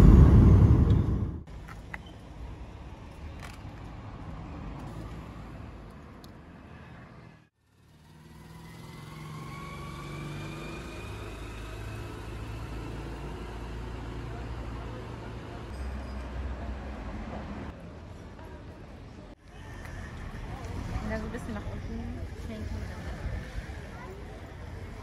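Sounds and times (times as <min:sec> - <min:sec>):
faint street traffic hum: 0:00.0 - 0:25.0.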